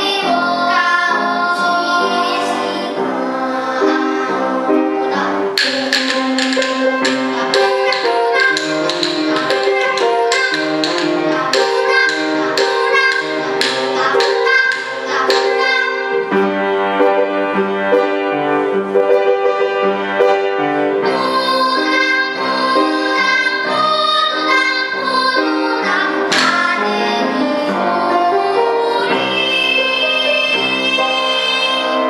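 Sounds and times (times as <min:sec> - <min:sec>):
girls' choir singing: 0:00.0 - 0:16.6, 0:20.9 - 0:32.0
backing track with piano and strings: 0:00.0 - 0:32.0
sharp taps: 0:05.6 - 0:15.9.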